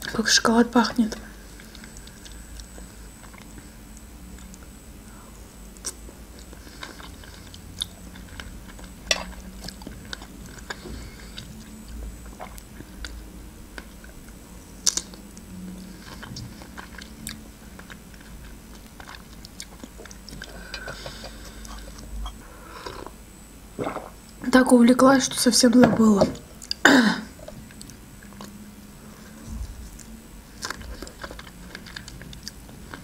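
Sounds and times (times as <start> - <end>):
chewing and wet mouth sounds: 5.8 - 23.2, 27.4 - 28.6, 29.7 - 33.0.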